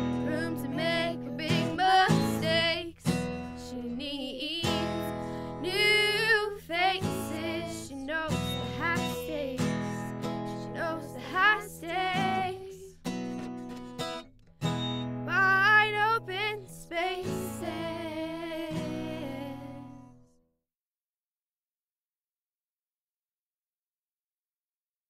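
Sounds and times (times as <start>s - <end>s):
strummed acoustic guitar: 0.0s - 4.0s, 4.6s - 20.3s
girls singing together: 0.2s - 9.9s, 10.7s - 12.9s, 15.3s - 19.9s.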